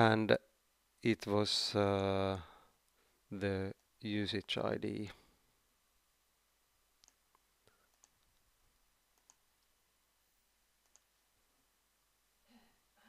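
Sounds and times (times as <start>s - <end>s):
computer mouse clicks: 7.0s - 8.4s, 9.2s - 9.4s, 10.8s - 11.1s.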